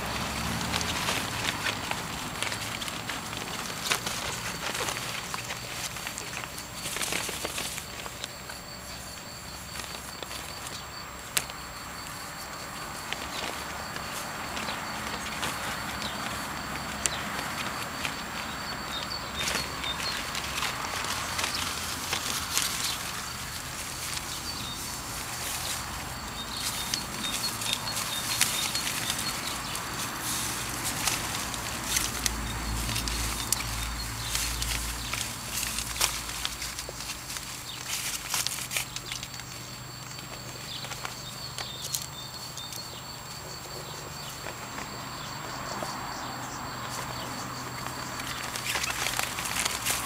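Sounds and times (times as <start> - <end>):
paws rustling fabric: 0.0 - 10.8
puppies rustling on grass and fabric: 0.0 - 50.0.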